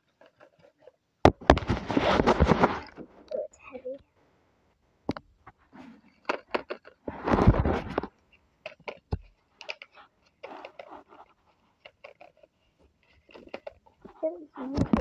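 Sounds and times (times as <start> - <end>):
paper and bedding rustling: 1.4 - 3.2
loud scraping rub: 1.6 - 3.1.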